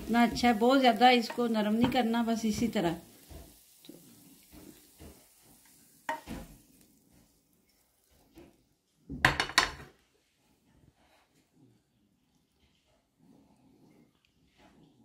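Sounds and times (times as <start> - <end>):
wooden spatula scraping a pan: 0.0 - 8.9, 9.6 - 11.7.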